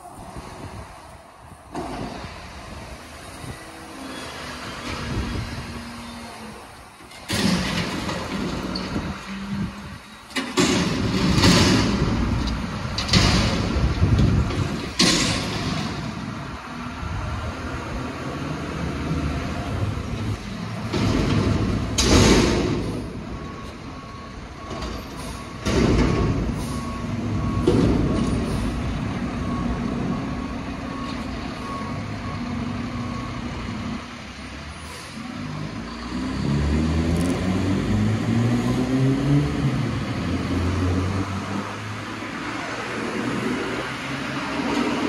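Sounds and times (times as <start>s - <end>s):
backup alarm beeping: 22.4s - 34.0s.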